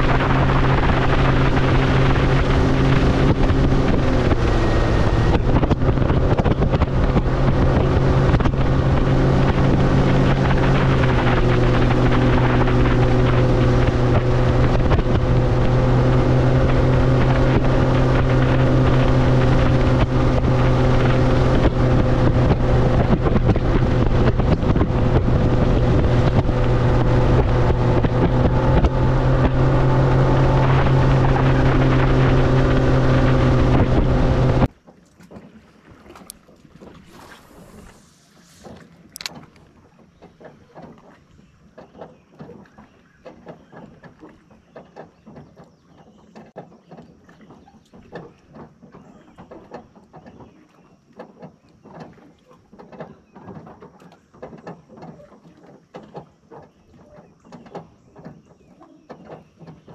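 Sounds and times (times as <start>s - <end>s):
wind on microphone: 0.0s - 34.7s
outboard motor running at speed: 0.0s - 59.9s
water against hull: 0.0s - 59.9s.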